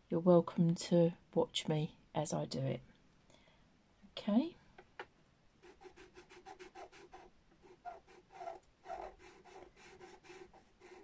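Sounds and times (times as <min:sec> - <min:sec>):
pastel pencil scratching on paper: 0:05.6 - 0:11.0.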